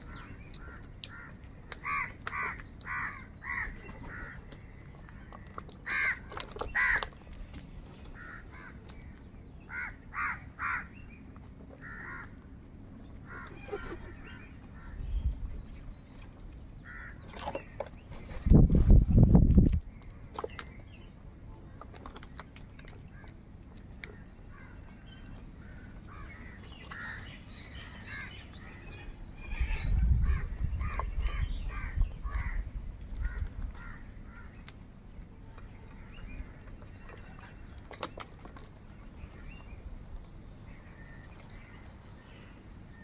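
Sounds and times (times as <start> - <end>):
crows cawing: 0.6 - 4.4, 5.8 - 6.2, 6.8 - 7.1, 8.2 - 8.7, 9.7 - 10.9, 11.8 - 12.3, 16.8 - 17.2, 30.3 - 32.6
low rumble: 27.5 - 37.8.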